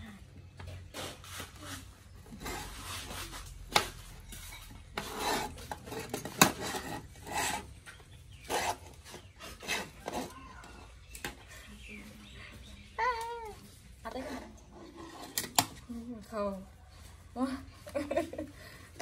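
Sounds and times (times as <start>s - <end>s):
plastic scraping on tabletop: 2.3s - 11.4s.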